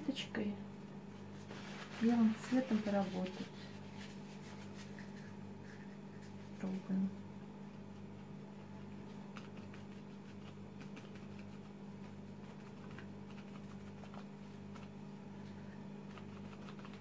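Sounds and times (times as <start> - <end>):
steady low hum: 0.0 - 17.0
paper napkin tapping paper: 8.9 - 15.0, 16.0 - 17.0.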